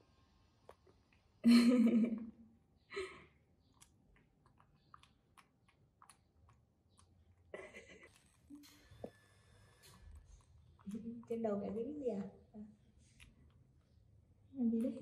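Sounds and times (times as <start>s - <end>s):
small clicks and smacking: 3.5s - 15.0s.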